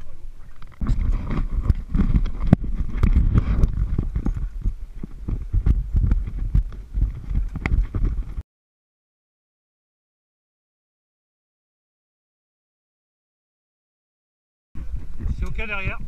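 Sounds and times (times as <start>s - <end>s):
steady low rumble: 0.0s - 8.4s
knocks and clunks of dive gear: 0.6s - 8.4s.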